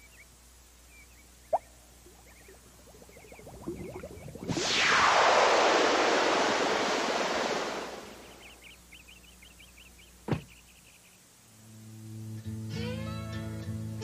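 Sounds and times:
faint chirping: 0.0s - 5.0s, 7.9s - 12.0s
loud hissing rush of smoke: 2.0s - 8.6s.

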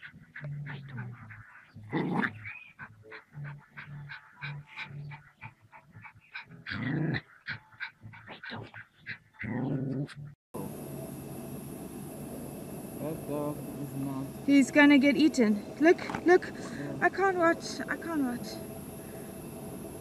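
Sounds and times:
small dog growling and snarling: 0.0s - 2.6s, 3.3s - 8.8s, 9.4s - 10.4s.

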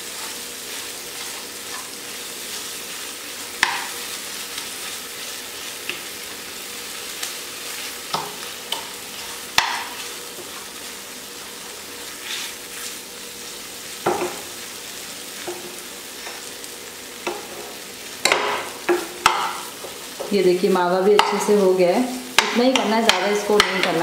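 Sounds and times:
food sizzling in a pan: 0.0s - 24.0s
steel spoon scraping a pan: 12.1s - 13.0s.

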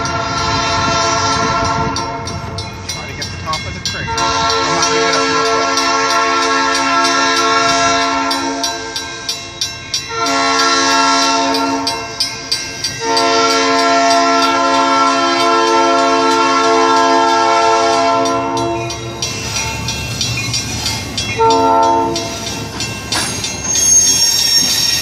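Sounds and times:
locomotive air horn blasts: 0.0s - 2.4s, 4.0s - 8.9s, 10.1s - 12.1s, 13.0s - 19.0s, 21.4s - 22.4s
crossing signal bell dinging: 1.4s - 25.0s.

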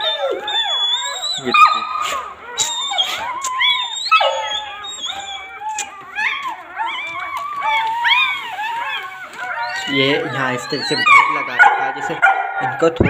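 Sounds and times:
puppies squeaking and whimpering: 0.0s - 13.0s.

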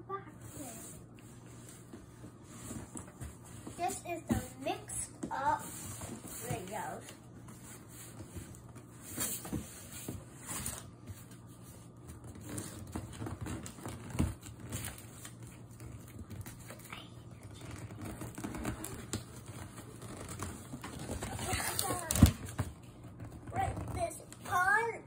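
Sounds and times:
tape tearing: 17.6s - 22.6s.

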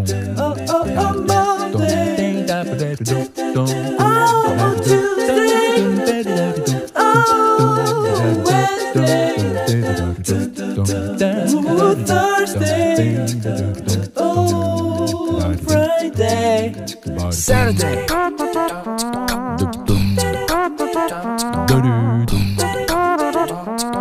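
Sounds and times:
low bass: 0.0s - 2.1s, 7.6s - 11.1s, 11.9s - 18.1s, 19.4s - 20.5s, 21.6s - 22.8s
person singing with wavering notes: 0.0s - 23.8s.

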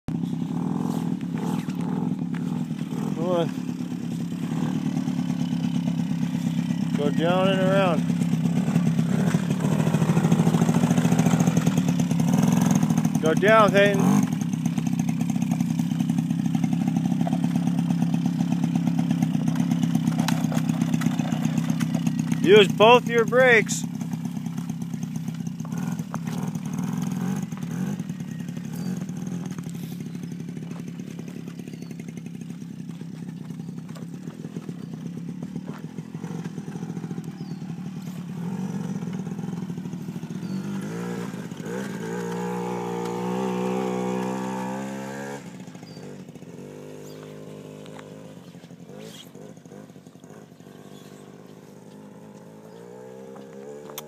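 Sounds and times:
atv engine running: 0.1s - 54.0s.

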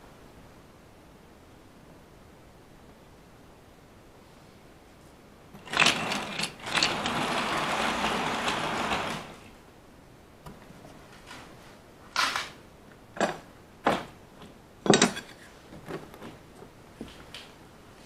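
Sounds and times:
wheels rattling on rails: 5.6s - 9.6s.

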